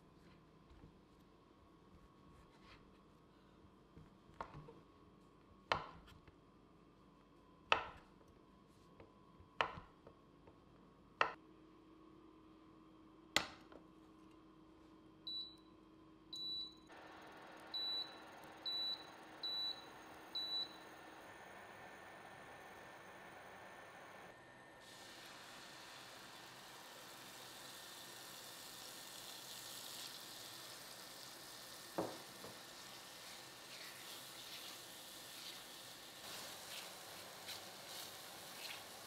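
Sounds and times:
cooktop touch panel beeps: 15.3 - 15.7, 16.3 - 16.9, 17.7 - 21.0
cooling fan whirring: 16.9 - 39.0.

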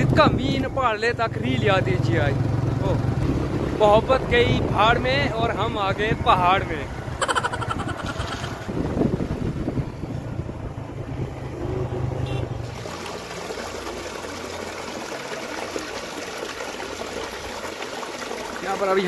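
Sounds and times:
running water rushing: 12.6 - 19.0.

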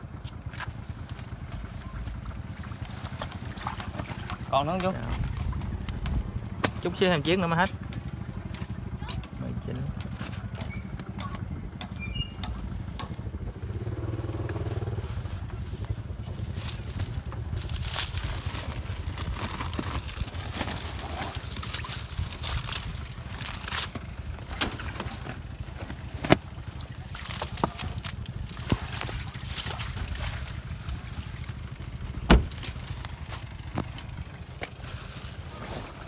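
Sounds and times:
low rumble: 9.9 - 36.0
plastic bags crinkling: 16.8 - 24.0.

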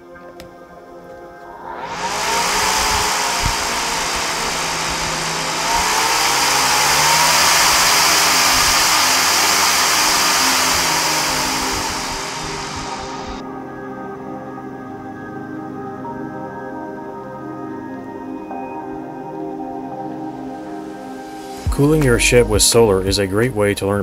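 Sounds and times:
fan running with motor whine: 1.6 - 13.4.

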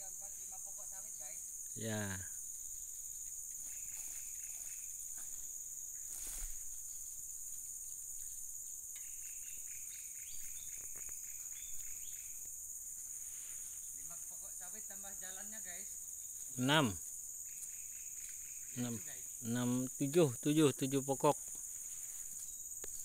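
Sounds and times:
shrill insect chorus: 0.0 - 23.0
faint repeated bird notes: 2.4 - 14.0, 16.1 - 20.1, 21.4 - 23.0.

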